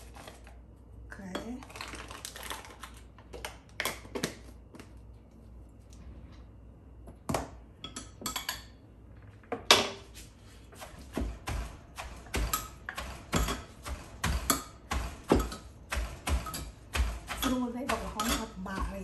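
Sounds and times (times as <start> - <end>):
pestle pounding in mortar: 10.8 - 19.0.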